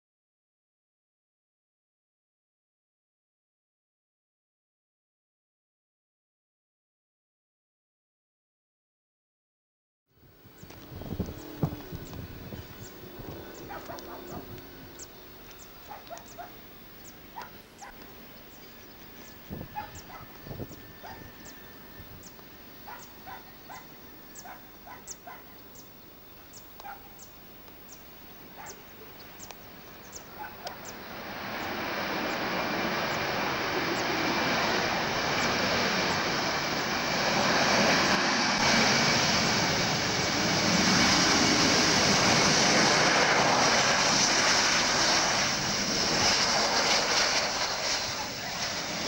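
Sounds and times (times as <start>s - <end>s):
jet engine roar: 10.2s - 25.5s, 28.4s - 49.0s
faint high chirps: 10.4s - 31.1s.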